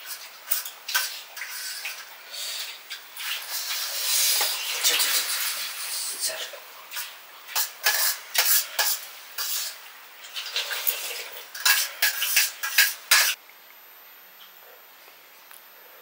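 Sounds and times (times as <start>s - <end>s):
dishes and utensils clinking: 6.9s - 13.4s.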